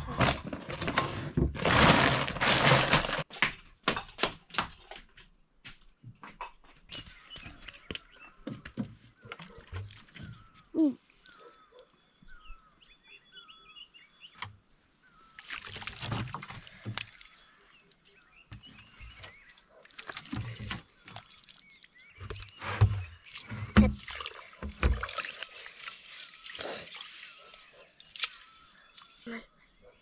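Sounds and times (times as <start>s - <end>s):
water pouring and sloshing: 0.0s - 3.3s, 8.5s - 11.5s, 15.3s - 29.2s.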